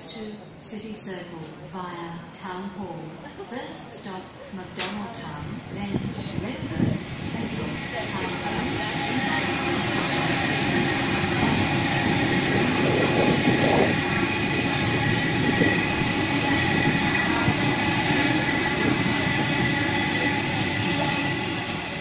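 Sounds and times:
train wheels rolling: 6.7s - 22.0s.

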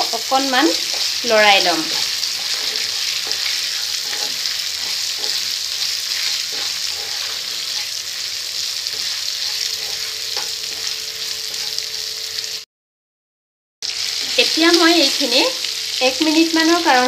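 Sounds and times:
vegetables sizzling in hot oil: 0.0s - 12.6s, 13.8s - 17.0s
spatula scraping a pan: 0.7s - 12.0s.

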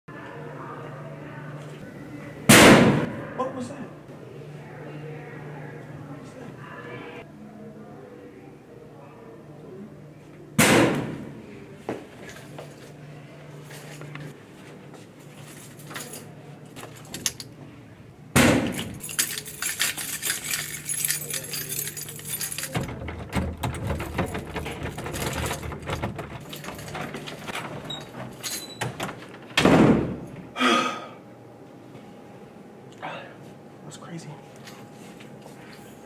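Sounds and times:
keys jangling against a doorknob: 15.4s - 17.6s, 18.7s - 29.4s.

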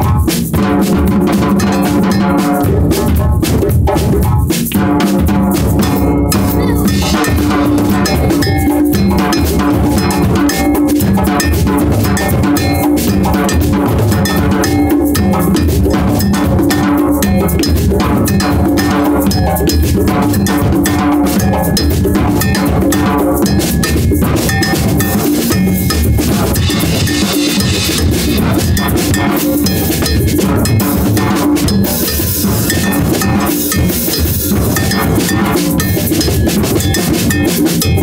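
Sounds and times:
drums playing steady rhythm: 0.0s - 38.0s
low held tones: 5.8s - 15.4s.

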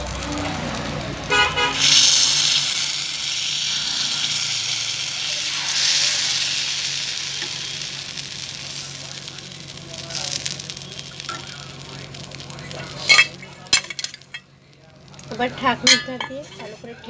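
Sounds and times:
batter sizzling in hot pan: 0.0s - 17.0s
horn toot: 1.2s - 2.6s.

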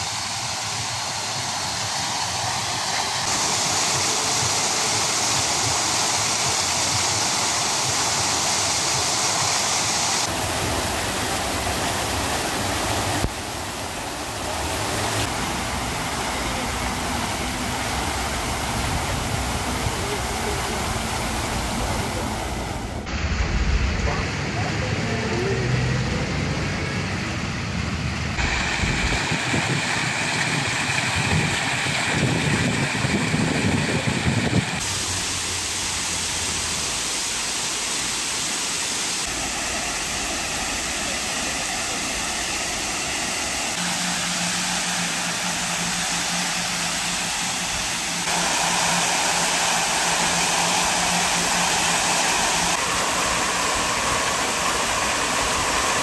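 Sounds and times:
fountain water splashing: 0.0s - 56.0s
low rumble: 22.6s - 24.9s.

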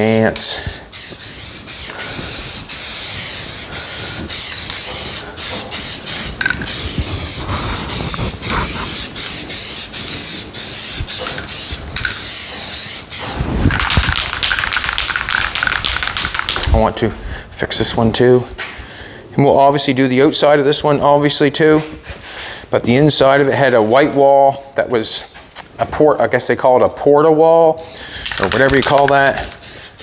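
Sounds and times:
aerosol can spraying hiss: 0.0s - 16.7s, 28.2s - 30.0s.

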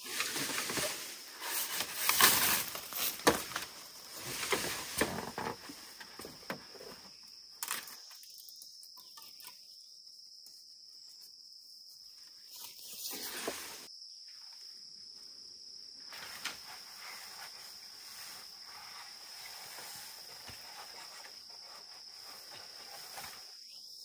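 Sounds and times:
rustling: 0.0s - 8.2s, 16.0s - 23.6s
insects chirring: 0.0s - 24.0s.

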